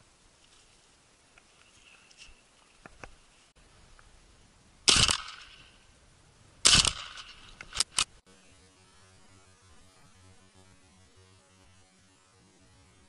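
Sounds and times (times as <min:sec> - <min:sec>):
faint steady hum: 0:00.0 - 0:13.0
shotgun shots: 0:04.8 - 0:05.8, 0:06.6 - 0:08.1
sharp clicks: 0:04.9 - 0:05.8, 0:06.7 - 0:08.2.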